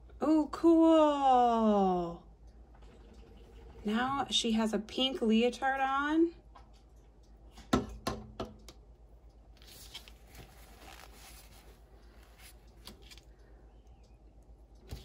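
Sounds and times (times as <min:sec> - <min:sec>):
soft rustle: 0:09.5 - 0:13.5.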